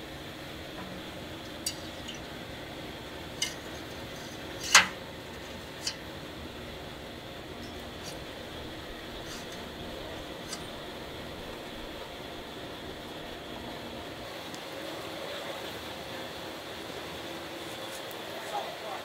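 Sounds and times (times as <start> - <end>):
steel rod clinking on barrel: 0.8 - 2.3, 3.4 - 5.0, 5.7 - 6.0.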